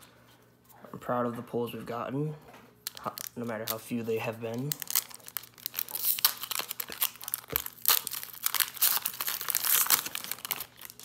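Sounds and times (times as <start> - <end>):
foil wrapper crinkling and tearing: 2.8 - 11.0.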